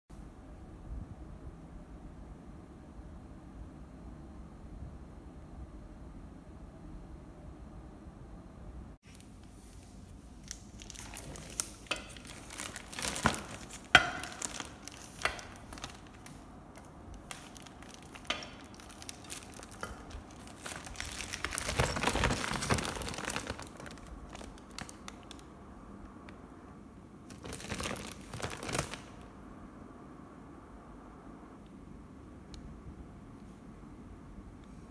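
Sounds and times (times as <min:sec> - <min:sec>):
plastic film crinkling: 0:09.0 - 0:25.5, 0:27.3 - 0:29.3.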